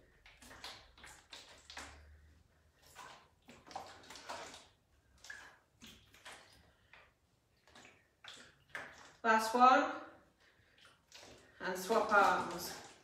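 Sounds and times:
liquid sloshing in plastic can: 0.0 - 9.6, 10.4 - 13.0.

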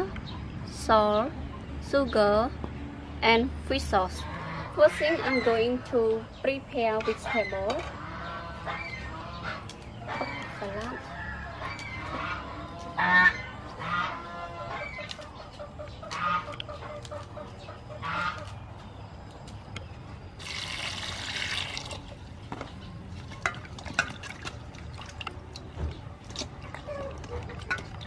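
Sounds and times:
fowl honking calls: 4.2 - 6.2, 7.0 - 18.6.

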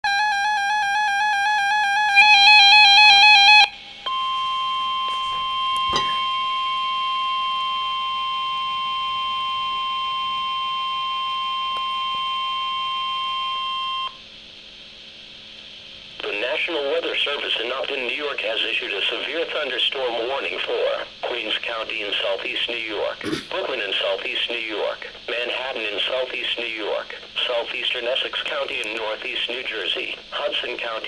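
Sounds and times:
steady alarm tone: 0.1 - 14.2
faint hum: 0.1 - 31.0
warbling alert beeps: 4.4 - 6.6.

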